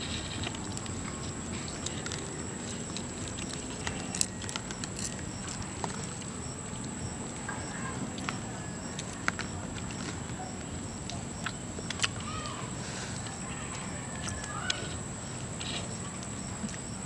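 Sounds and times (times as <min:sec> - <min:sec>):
snail shells clicking in fingers: 0:01.7 - 0:05.6.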